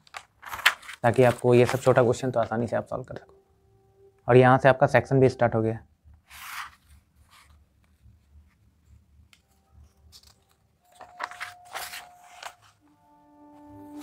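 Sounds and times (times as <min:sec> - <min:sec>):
page turning crackle: 0:00.0 - 0:02.5, 0:09.4 - 0:12.8
paper pages rustling: 0:00.0 - 0:02.7, 0:06.3 - 0:12.8.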